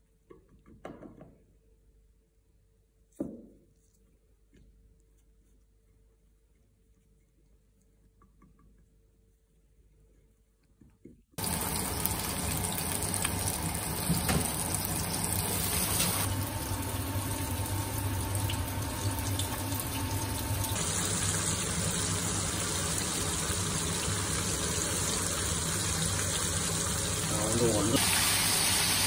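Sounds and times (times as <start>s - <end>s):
chicken wings sizzling in oil: 11.4s - 29.0s.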